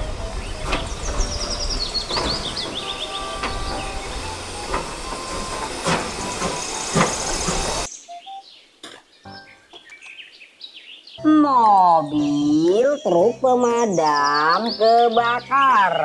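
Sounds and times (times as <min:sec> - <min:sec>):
steam hissing: 0:00.0 - 0:07.9.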